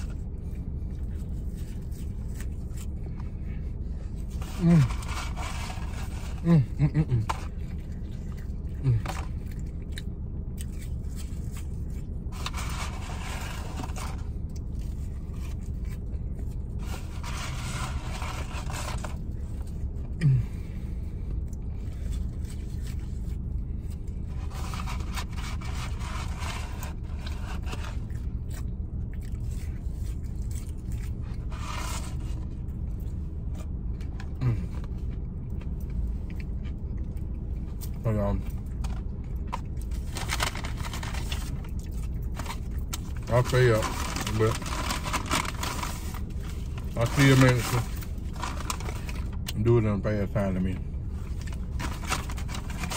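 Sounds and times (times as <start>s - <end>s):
idling car rumble: 0.0s - 52.9s
paper carton rustling: 43.3s - 49.3s, 51.7s - 52.9s.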